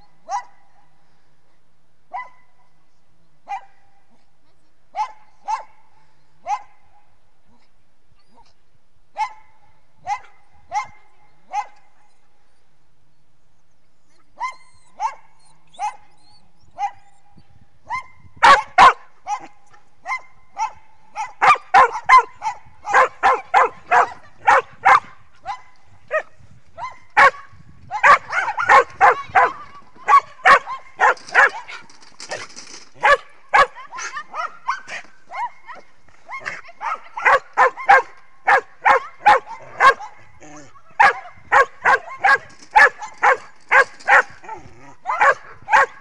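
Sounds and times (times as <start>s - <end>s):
small dog barking: 5.0s - 5.8s, 15.0s - 16.1s, 18.4s - 19.5s, 20.1s - 31.9s, 33.0s - 40.3s, 41.0s - 44.4s, 45.0s - 46.0s.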